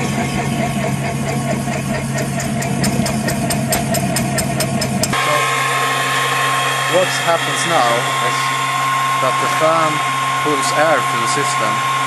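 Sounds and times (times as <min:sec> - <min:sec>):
fan humming: 0:00.0 - 0:12.0.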